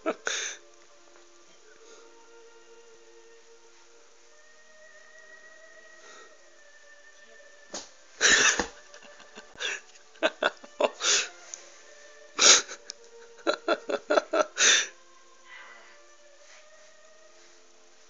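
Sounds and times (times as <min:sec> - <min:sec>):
person giggling: 0:00.0 - 0:00.5, 0:08.2 - 0:11.3, 0:12.4 - 0:14.9.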